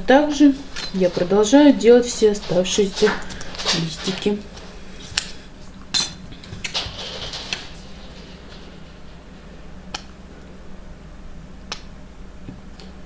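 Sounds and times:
paper sheets rustling: 0.3 - 9.5.

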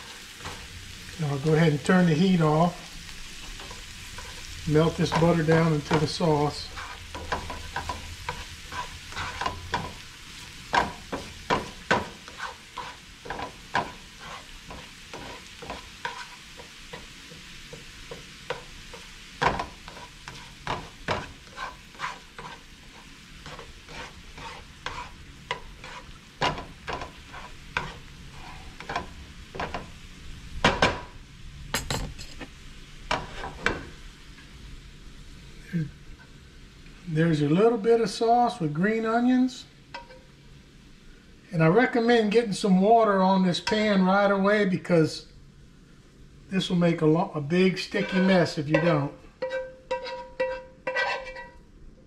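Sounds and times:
sauce sizzling in a skillet: 0.0 - 31.7, 32.4 - 52.0
spatula scraping and tapping pan: 0.1 - 0.7, 3.4 - 29.9, 33.1 - 33.9, 39.9 - 40.3, 43.6 - 43.9, 47.7 - 51.6.

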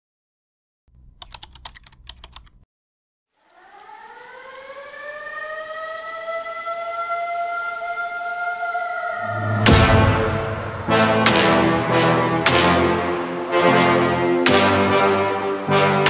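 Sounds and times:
sharp clicks: 1.2 - 2.6
siren-like rising tone: 3.5 - 12.4
low hum: 9.1 - 12.4
music: 9.2 - 16.0.

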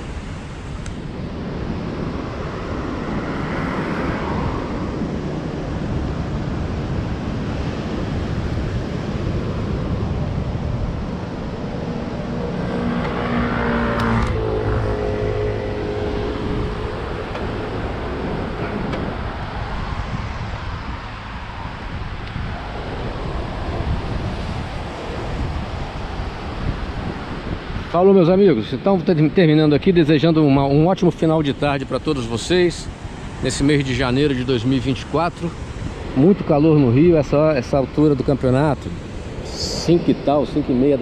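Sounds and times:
road traffic rumble: 0.0 - 41.0
vehicle passing: 1.8 - 6.7, 10.8 - 27.1.

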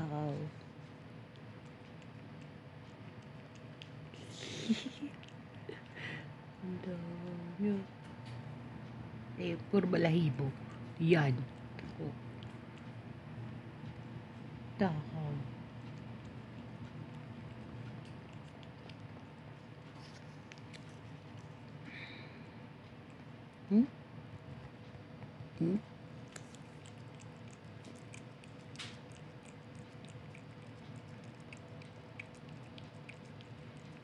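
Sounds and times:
low steady background hum: 0.0 - 34.0
cat tongue licking clicks: 15.8 - 21.8, 26.3 - 34.0.

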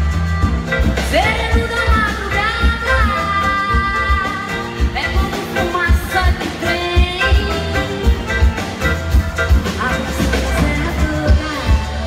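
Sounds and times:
accordion: 0.0 - 12.0
person singing: 9.6 - 12.0.

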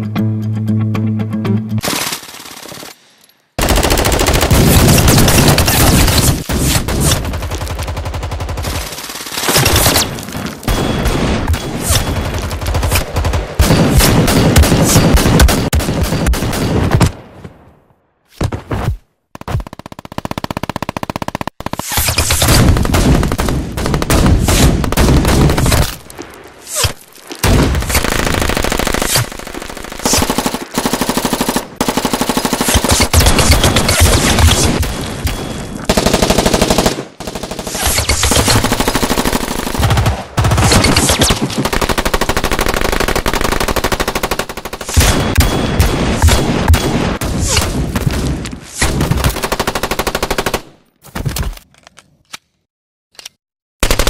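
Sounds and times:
automatic gunfire bursts: 3.6 - 6.3.

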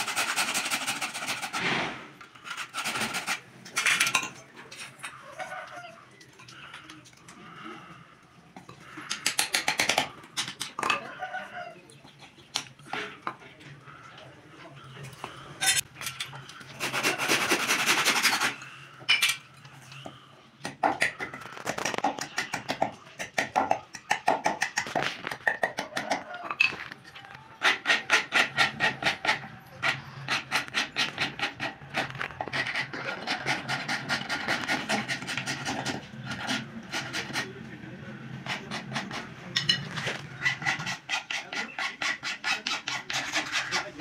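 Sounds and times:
metal file rasping on wood: 0.0 - 1.8, 2.4 - 4.0, 16.7 - 18.6, 27.6 - 37.6, 38.4 - 39.3, 40.0 - 44.0
blade shaving wood: 0.0 - 3.5, 16.5 - 18.7, 27.6 - 39.3, 40.0 - 44.0.

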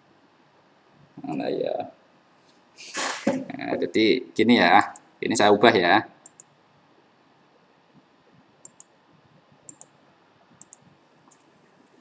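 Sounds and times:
faint room hiss: 0.0 - 12.0
computer mouse clicks: 6.2 - 6.5, 8.6 - 8.9, 9.7 - 10.0, 10.6 - 11.5.

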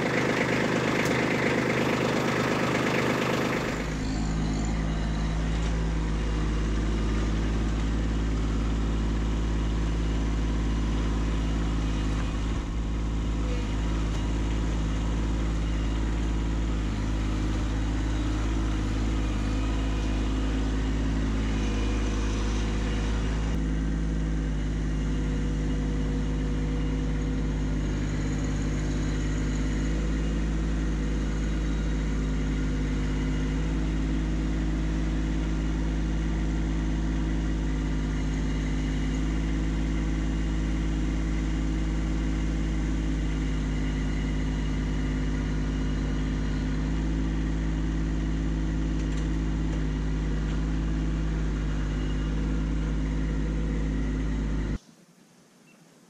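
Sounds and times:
diesel tractor engine running: 0.0 - 54.8.

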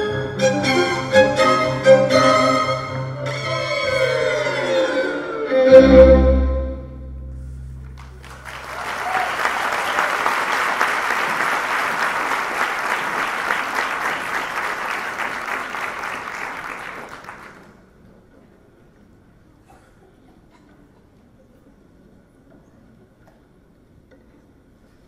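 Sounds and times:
string ensemble chord: 0.0 - 8.2
audience applauding: 7.9 - 17.8.

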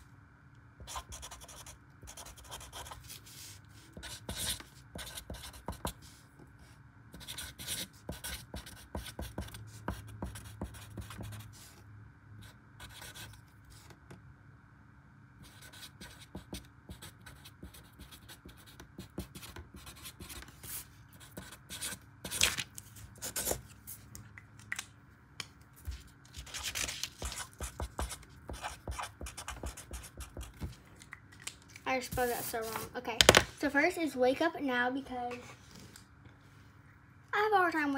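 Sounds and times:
marker writing on paper: 0.8 - 6.1, 7.2 - 11.7, 12.4 - 14.0, 15.4 - 22.4, 23.2 - 23.7, 27.2 - 30.7, 32.1 - 32.9.

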